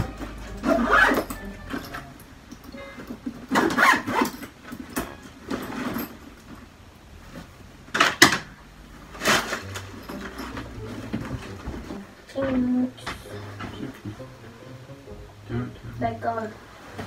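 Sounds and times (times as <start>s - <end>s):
fabric bag rustling: 0.1s - 2.2s, 3.1s - 7.6s, 9.0s - 12.3s.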